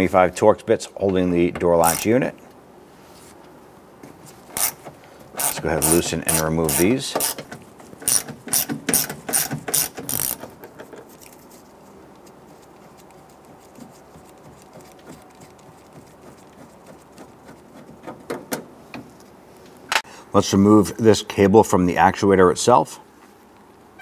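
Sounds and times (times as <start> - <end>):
ratchet clicking: 4.6 - 10.6.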